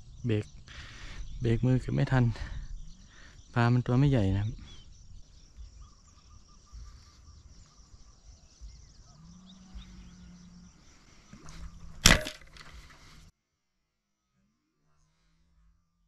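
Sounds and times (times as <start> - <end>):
speargun firing snap: 12.0 - 12.6.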